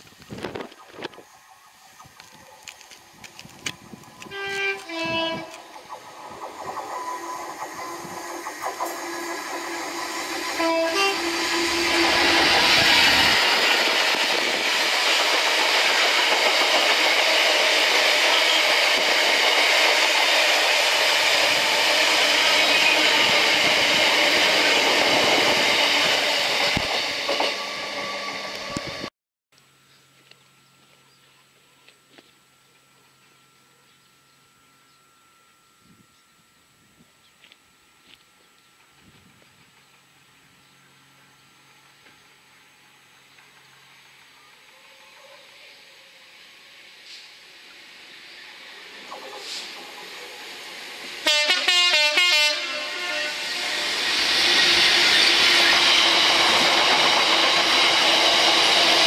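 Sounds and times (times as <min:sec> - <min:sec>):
train passing close by: 0:00.0 - 0:29.1, 0:32.6 - 0:59.0
two-tone locomotive horn: 0:04.2 - 0:05.7, 0:09.1 - 0:13.0, 0:51.2 - 0:54.0.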